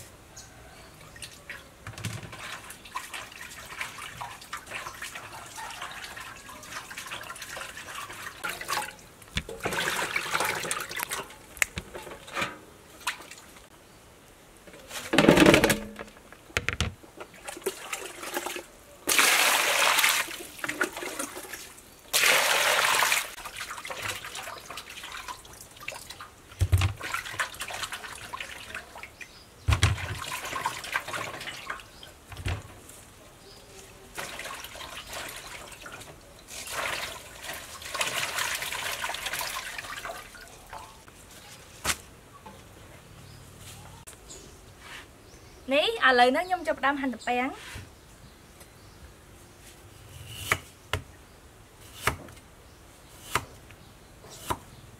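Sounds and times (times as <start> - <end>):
water sloshing in metal basin: 1.1 - 13.7, 17.2 - 32.7, 34.1 - 41.7
water pouring: 2.2 - 13.6, 17.4 - 29.1, 30.0 - 32.0, 34.1 - 41.2.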